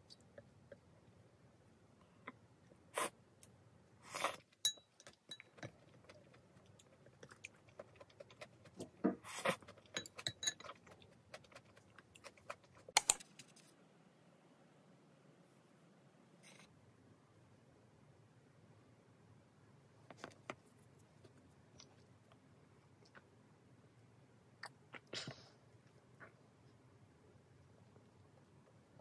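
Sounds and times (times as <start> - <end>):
eating sounds: 5.7 - 9.9.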